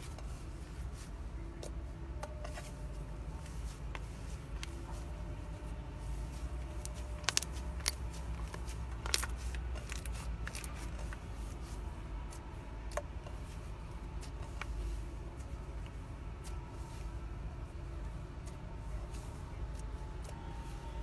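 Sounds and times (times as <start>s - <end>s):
slime squished by hand: 6.6s - 11.1s.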